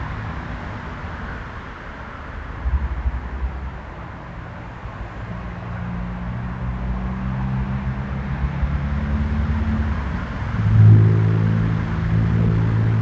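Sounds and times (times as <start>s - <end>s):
low engine hum: 0.0s - 13.0s
steady pitched tones: 10.0s - 13.0s.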